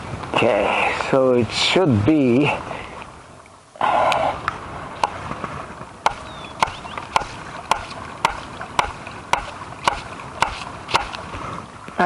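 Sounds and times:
hammer driving stake into ground: 6.1s - 11.2s.

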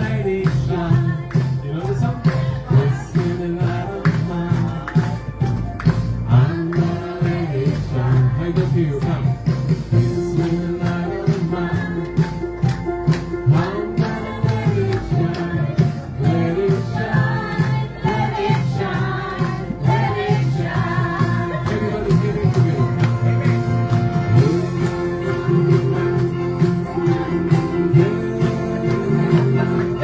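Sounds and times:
worship song singing with instruments: 0.0s - 30.0s.

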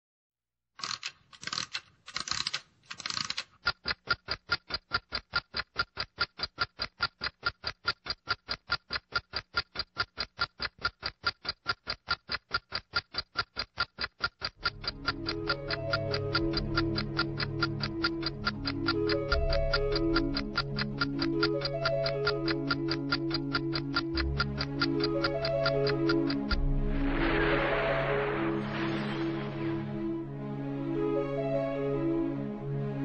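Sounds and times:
rapid typing-like clatter: 0.8s - 26.6s
fast clock ticking: 0.8s - 26.8s.

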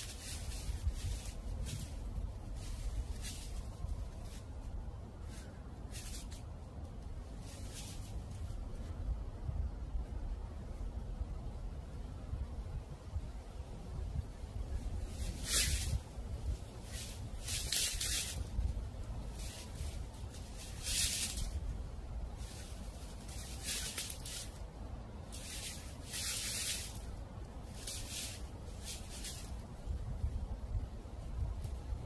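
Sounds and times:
footsteps crunching dry leaves: 0.0s - 4.5s, 16.6s - 21.8s
low wind rumble: 0.0s - 32.0s.

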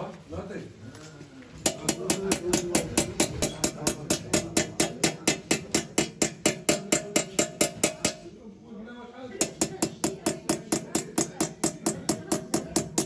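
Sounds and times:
hammer tapping chisel on brass: 1.6s - 8.2s, 9.4s - 13.0s.

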